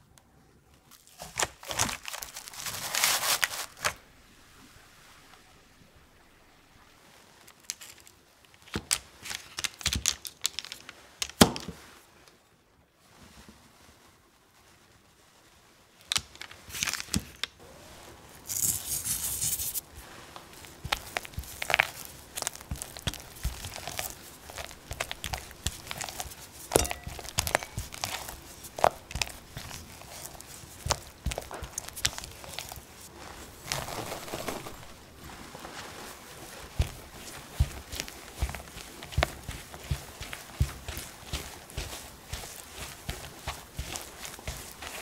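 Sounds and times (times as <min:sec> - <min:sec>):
paper crackling: 0:00.9 - 0:04.0, 0:07.5 - 0:11.5, 0:18.4 - 0:45.0
spatula squelching butter: 0:18.6 - 0:33.9, 0:36.4 - 0:45.0.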